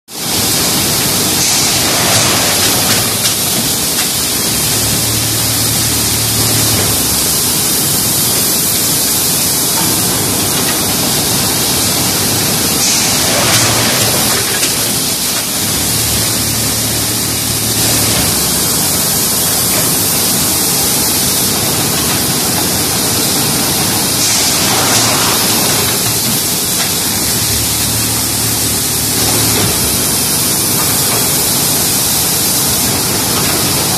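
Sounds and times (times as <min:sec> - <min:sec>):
low machine hum: 0:00.2 - 0:33.9
machinery hissing: 0:00.2 - 0:33.9.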